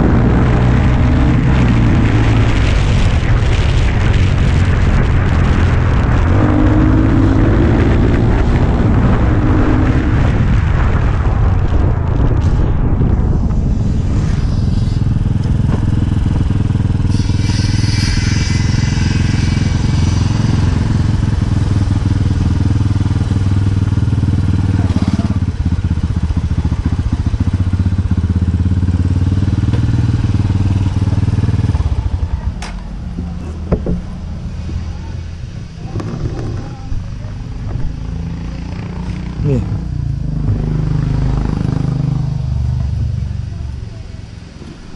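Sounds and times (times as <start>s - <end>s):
motorcycle engine running: 11.0s - 44.9s.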